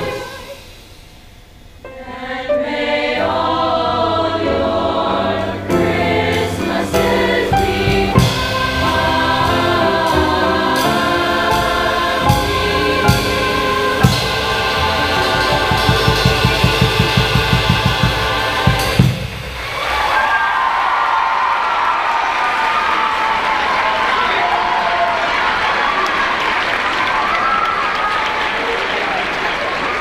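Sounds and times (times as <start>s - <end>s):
choir singing in parts: 0.0s - 0.8s, 1.8s - 20.0s
drum kit: 5.6s - 20.4s.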